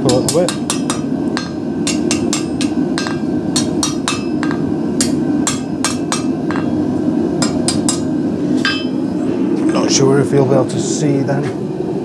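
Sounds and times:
hammer striking steel on anvil: 0.0 - 6.8, 7.4 - 9.0
steady low hum: 0.0 - 12.0.

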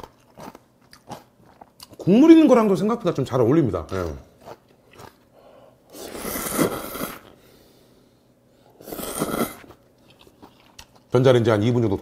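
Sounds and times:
noodle slurp: 5.9 - 7.3, 8.8 - 10.7
person blowing on food: 5.9 - 7.4, 8.8 - 9.8.

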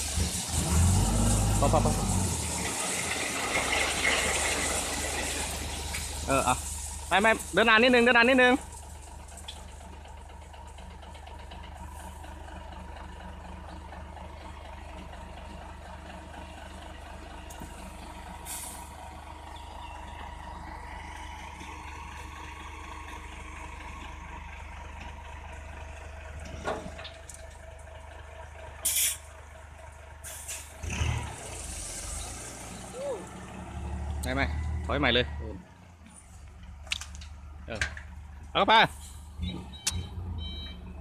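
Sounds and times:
truck engine running at low revs: 0.0 - 41.0
air brake hiss: 18.4 - 18.8, 28.8 - 29.2, 30.2 - 30.7.

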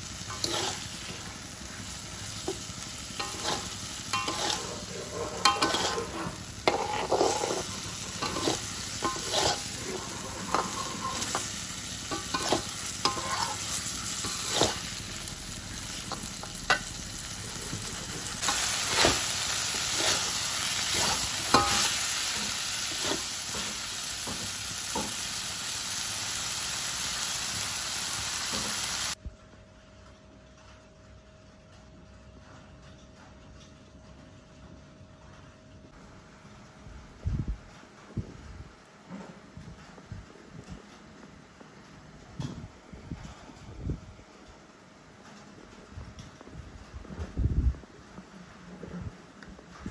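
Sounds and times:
oil sizzling in wok: 0.0 - 29.2
metal spatula scraping pan: 0.2 - 1.5, 2.2 - 15.2, 17.7 - 25.3.

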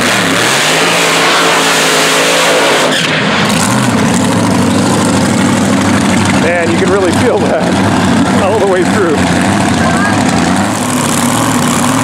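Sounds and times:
dragster engine at high revs: 0.0 - 12.0.

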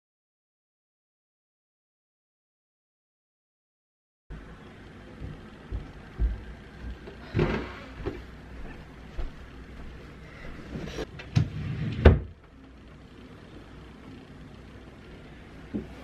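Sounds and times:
footsteps on floor: 5.2 - 11.1.

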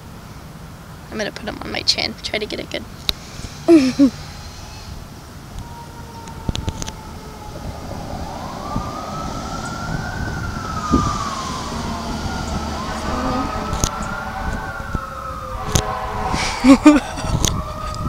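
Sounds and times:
emergency siren wailing: 4.2 - 18.0.

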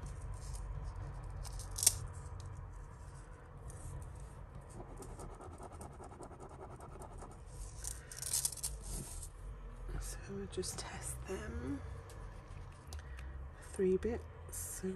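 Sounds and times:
steady low hum: 0.0 - 14.9
metal jewellery clicking and scratching: 0.2 - 2.6, 7.6 - 9.3.

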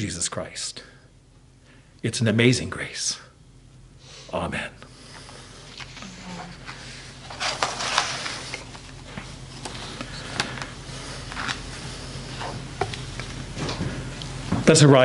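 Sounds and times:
low steady hum: 0.0 - 15.0
paper rustling near microphone: 5.7 - 13.7.

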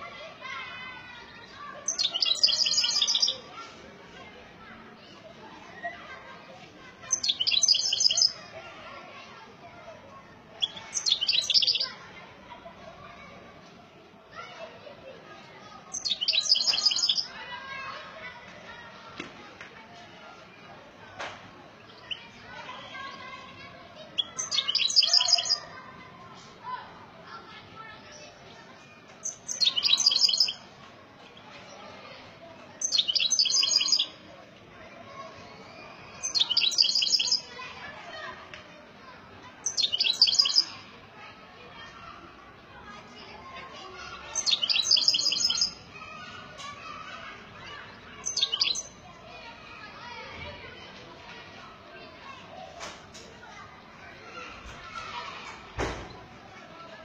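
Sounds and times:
bird chirps: 1.9 - 3.5, 29.2 - 30.6, 35.6 - 37.4, 39.7 - 40.8, 44.4 - 45.8, 48.2 - 49.0.

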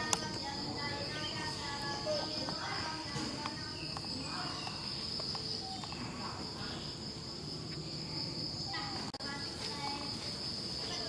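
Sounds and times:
faint chirping calls: 0.0 - 9.1
insects droning: 0.0 - 11.0.

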